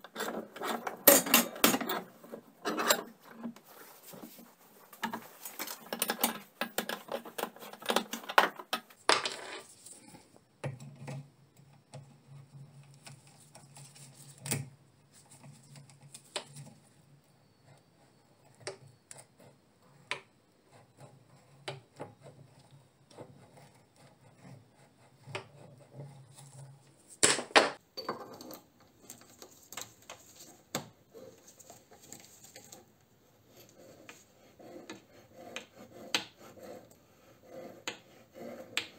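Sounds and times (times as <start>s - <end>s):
metal tools clattering: 0.1s - 3.2s.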